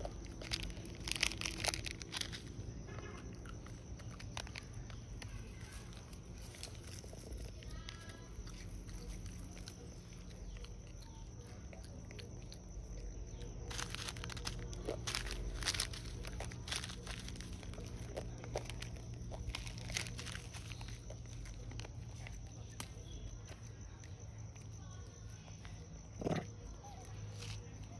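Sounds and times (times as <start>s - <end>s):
foil packet crinkling: 0.0s - 10.6s, 13.4s - 23.2s
low background hum: 0.0s - 27.9s.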